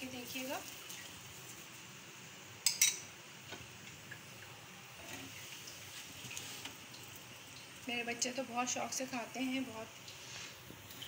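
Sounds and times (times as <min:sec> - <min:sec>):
faint steady hiss: 0:00.0 - 0:11.0
utensil clinking on cookware: 0:02.6 - 0:03.1.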